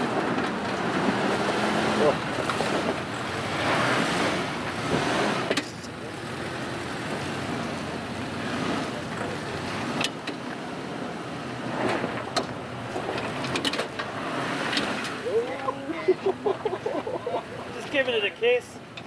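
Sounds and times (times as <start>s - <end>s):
vehicle engine running: 0.0s - 19.0s
sharp clicks and knocks: 5.5s - 5.9s, 11.9s - 14.1s.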